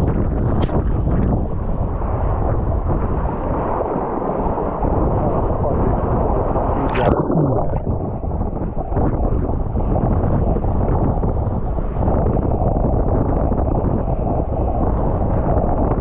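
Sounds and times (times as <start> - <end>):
wind buffeting microphone: 0.0 - 16.0
water rushing and splashing: 6.5 - 8.4.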